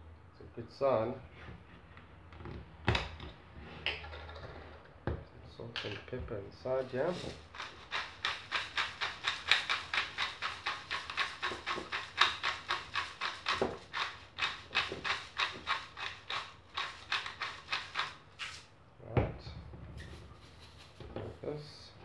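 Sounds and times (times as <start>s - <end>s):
seasoning bottle shaking into jar: 6.8s - 18.6s, 20.1s - 21.0s.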